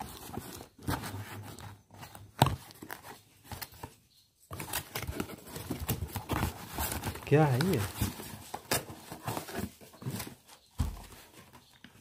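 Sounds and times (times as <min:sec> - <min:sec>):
cardboard box rustling and scraping: 0:00.0 - 0:03.9, 0:04.5 - 0:12.0.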